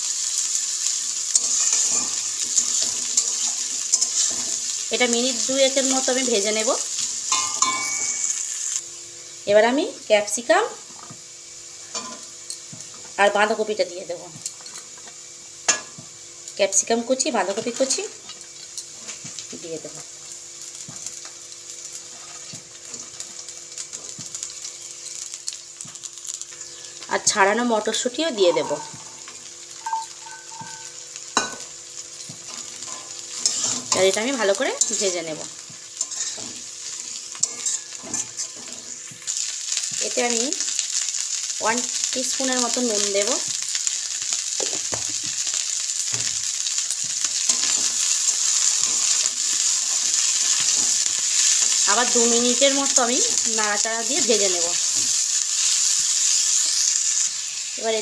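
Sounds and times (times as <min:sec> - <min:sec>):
vegetables sizzling in hot oil: 0:00.0 - 0:58.0
spatula scraping wok: 0:00.2 - 0:06.2, 0:21.9 - 0:25.2, 0:32.4 - 0:39.8, 0:47.0 - 0:51.9.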